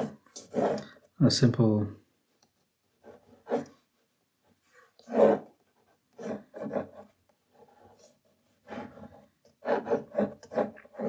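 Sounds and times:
pencil scratching on paper: 0.0 - 1.1, 2.9 - 11.0.

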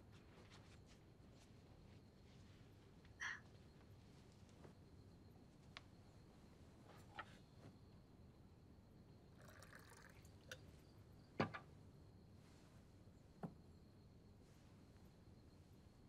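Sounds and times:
wine pouring into cup: 9.4 - 10.6.

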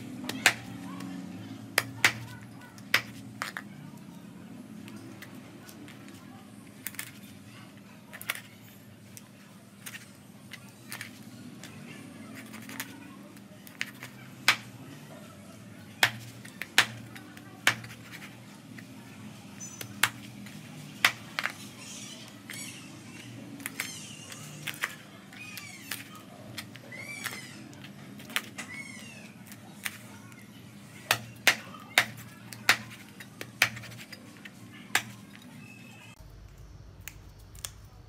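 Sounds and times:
cleaver chopping meat on plastic board: 1.8 - 2.3, 16.0 - 18.2, 31.1 - 34.0.

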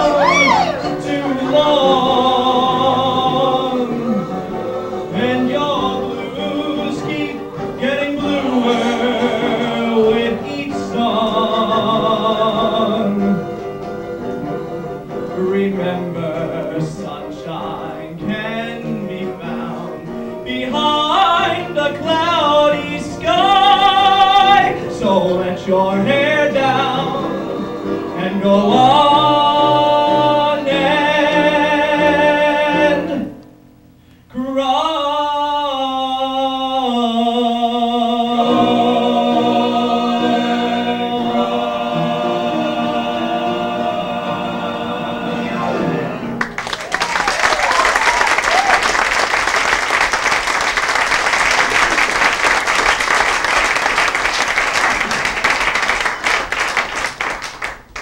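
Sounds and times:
male vocal quartet singing: 0.0 - 33.4, 34.3 - 46.4
audience applause: 46.3 - 58.0.

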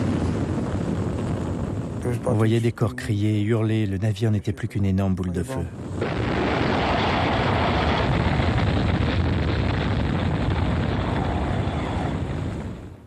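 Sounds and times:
loud steady rumbling: 5.7 - 12.9.

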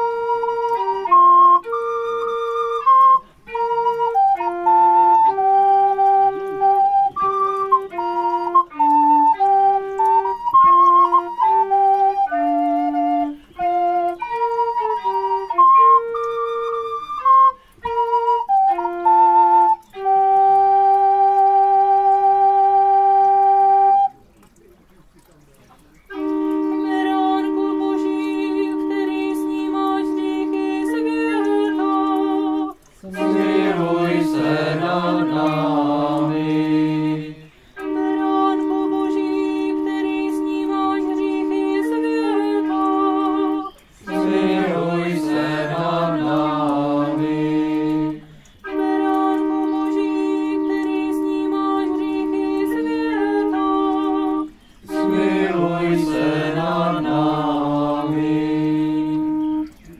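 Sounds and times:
group singing a hymn: 33.0 - 37.6, 44.1 - 48.4, 54.9 - 59.4
pipe organ chords: 42.6 - 48.7, 54.9 - 59.9.

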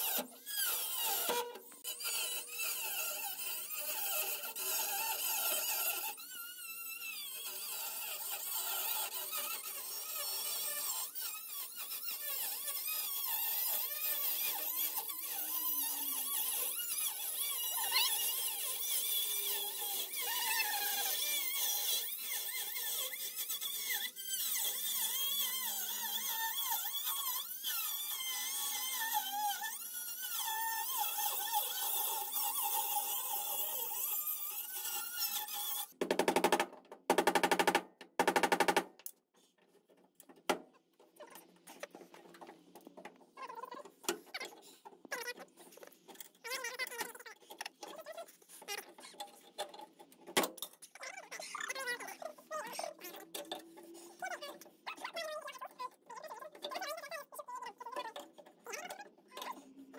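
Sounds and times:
cut-off wheel cutting steel: 0.0 - 36.0.

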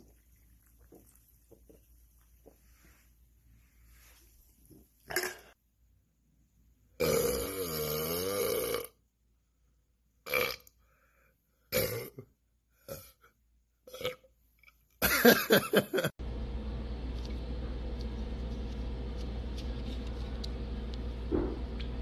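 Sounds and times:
man burping: 7.0 - 9.0, 11.7 - 12.3.

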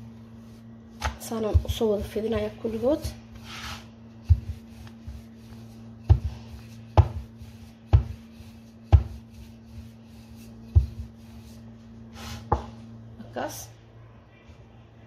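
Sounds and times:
rolling pin rubbing on metal pan: 0.3 - 12.6
rolling pin knocking: 4.2 - 9.9, 10.6 - 11.3.

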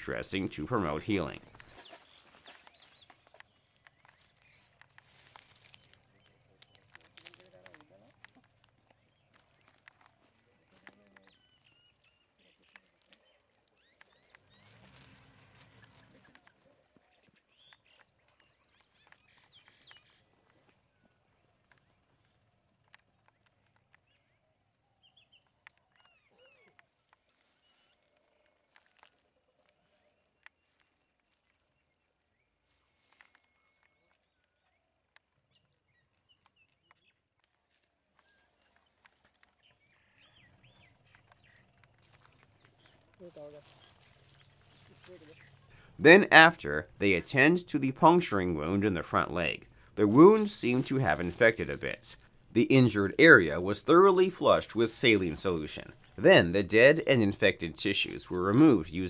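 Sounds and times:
bird chirps: 0.8 - 7.1, 8.7 - 20.3, 23.2 - 28.9
faint bird chirps: 23.3 - 37.2.

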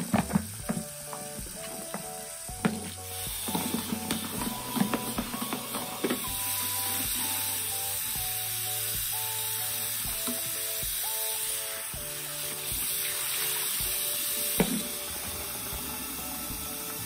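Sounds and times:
background music: 0.0 - 17.0
tap water splashing into jug: 0.1 - 6.4, 12.7 - 15.4.

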